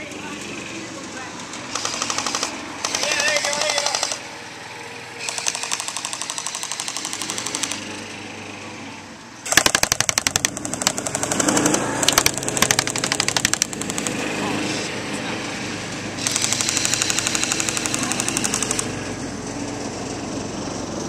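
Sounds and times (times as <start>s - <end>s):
airsoft machine gun bursts: 1.7s - 4.2s, 5.2s - 7.8s, 9.5s - 14.2s, 16.2s - 19.0s.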